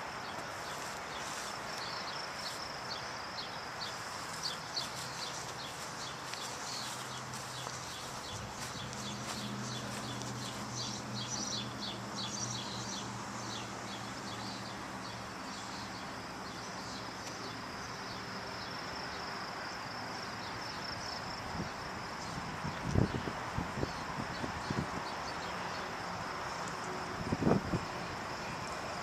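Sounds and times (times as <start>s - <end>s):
birds chirping: 0.0s - 18.7s
distant traffic hiss: 0.0s - 29.0s
high insect buzz: 0.0s - 29.0s.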